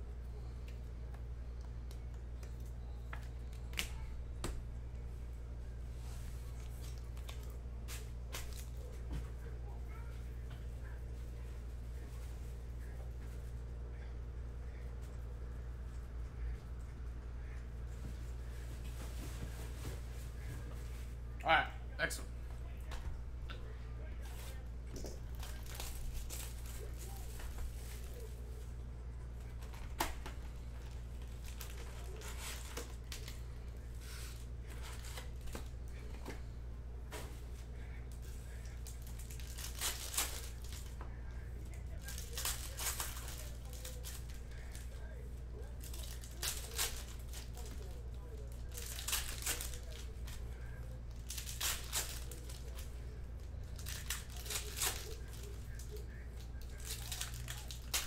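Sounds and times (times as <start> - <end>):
steady low hum: 0.0 - 58.0
foil packs ripping and rustling: 25.3 - 28.3, 31.2 - 33.5, 34.1 - 36.0, 38.6 - 41.0, 41.7 - 45.0, 45.7 - 52.9, 53.5 - 58.0.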